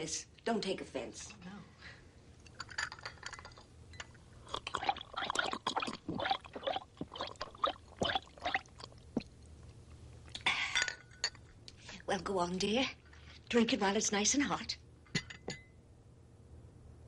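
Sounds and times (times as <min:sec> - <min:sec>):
cup and saucer clinking: 0:02.5 - 0:04.2, 0:15.1 - 0:15.8
tea pouring into cup: 0:04.5 - 0:09.4.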